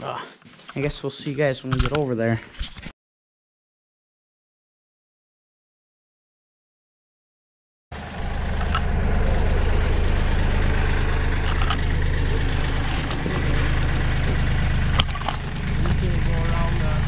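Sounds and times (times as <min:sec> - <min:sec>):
tractor engine idling: 0:08.0 - 0:17.0.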